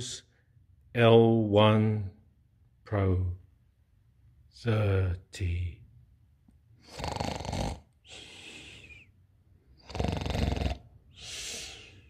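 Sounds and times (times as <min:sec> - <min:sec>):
person snoring: 0:06.8 - 0:09.1, 0:09.8 - 0:12.0
soft breath out: 0:08.0 - 0:09.1, 0:11.1 - 0:12.0.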